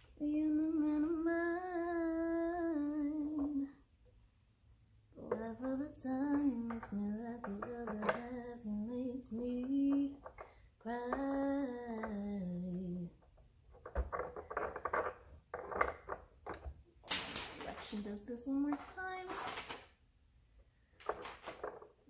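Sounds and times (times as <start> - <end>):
parts clicking and clinking: 5.3 - 8.6, 9.5 - 19.8, 20.9 - 22.0.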